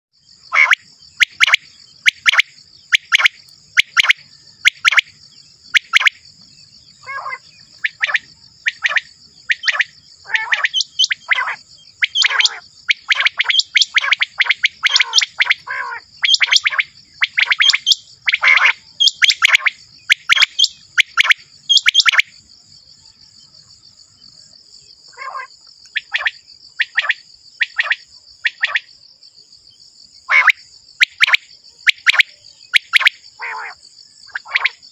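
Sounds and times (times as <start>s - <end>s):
high insect-like hiss: 0.2s - 34.9s
quail calling: 0.5s - 5.1s, 7.0s - 22.2s, 25.1s - 27.1s, 30.3s - 34.9s.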